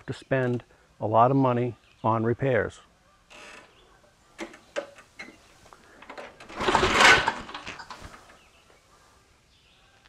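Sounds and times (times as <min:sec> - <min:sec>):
light clicks and knocks: 0:04.4 - 0:06.5
lawn mower starter cord pulled: 0:04.4 - 0:08.4.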